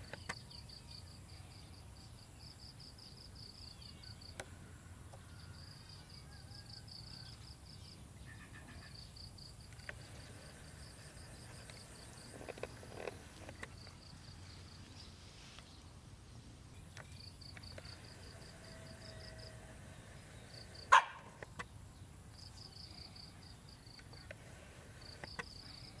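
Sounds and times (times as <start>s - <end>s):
dog barking: 20.9s - 21.4s.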